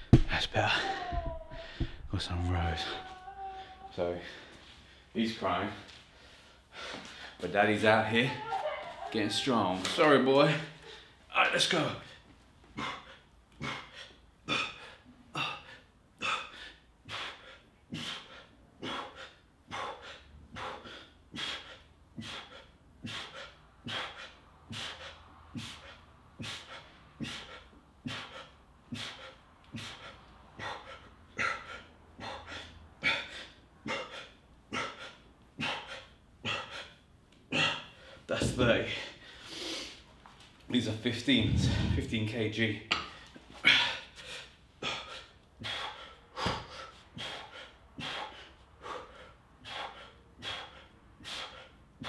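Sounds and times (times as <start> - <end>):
man breathing hard: 0.6 - 2.1, 5.9 - 7.4, 12.8 - 38.3, 41.3 - 42.3, 43.0 - 52.0.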